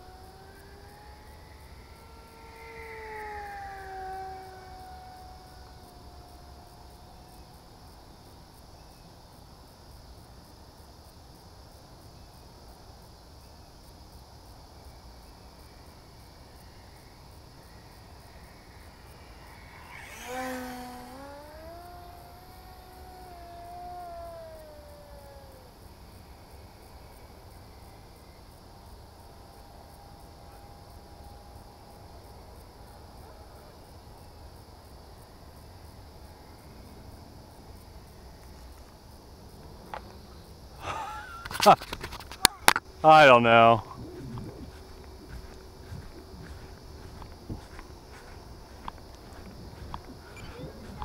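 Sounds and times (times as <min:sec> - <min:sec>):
model plane electric motor whine: 0:00.0 - 0:07.9, 0:16.6 - 0:26.7, 0:41.4 - 0:51.0
insects chirring: 0:00.0 - 0:51.0.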